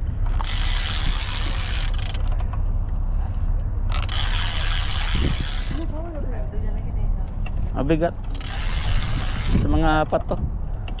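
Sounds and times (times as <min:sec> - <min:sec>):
wind rumble on microphone: 0:00.0 - 0:11.0
fishing reel whirring: 0:00.2 - 0:02.4, 0:03.9 - 0:05.9, 0:08.3 - 0:09.7.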